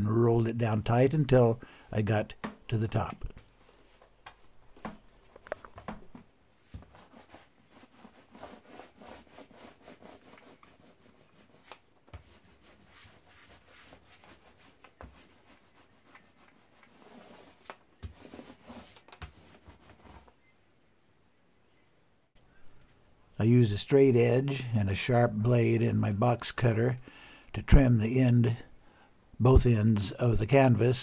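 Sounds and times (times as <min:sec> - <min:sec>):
paint roller rubbing and clicking: 0:06.8 - 0:20.4.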